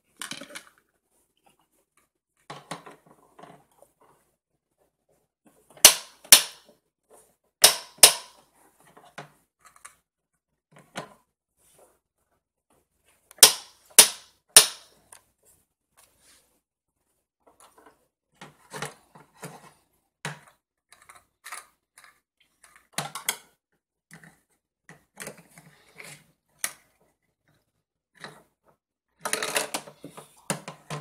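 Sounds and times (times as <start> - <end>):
toy cookware clattering: 29.2 - 29.8.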